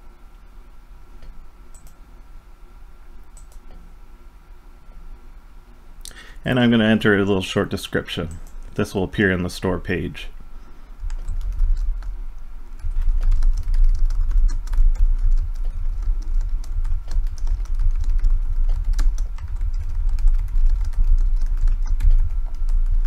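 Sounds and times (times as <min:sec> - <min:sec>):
rapid keyboard typing: 0:11.0 - 0:23.0.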